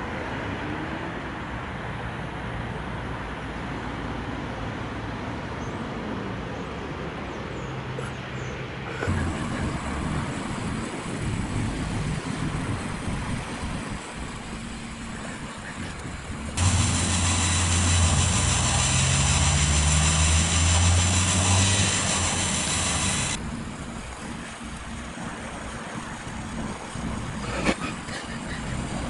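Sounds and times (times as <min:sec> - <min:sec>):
small electric motor humming: 0:13.4 - 0:23.4.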